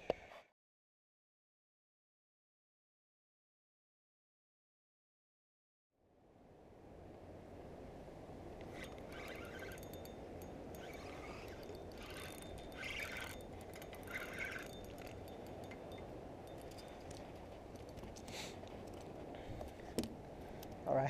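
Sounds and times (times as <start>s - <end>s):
fishing reel being cranked: 8.7s - 19.1s.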